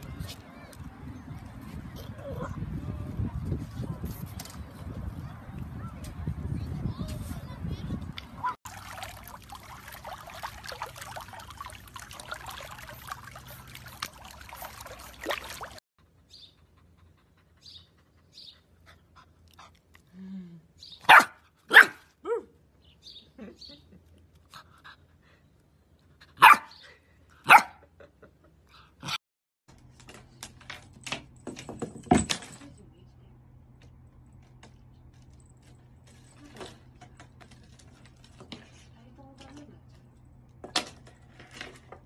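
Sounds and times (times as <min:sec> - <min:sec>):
dog barking: 0:21.0 - 0:22.4, 0:26.4 - 0:26.8, 0:27.4 - 0:27.8
dog yipping: 0:21.0 - 0:22.4.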